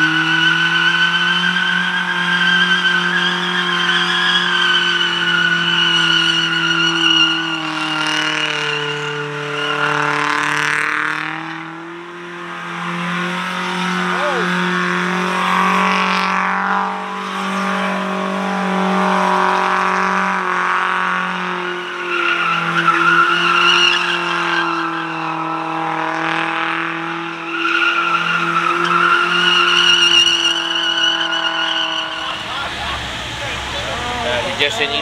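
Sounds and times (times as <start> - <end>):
car engine at high revs: 0.0 - 35.0
tyres squealing: 27.5 - 35.0.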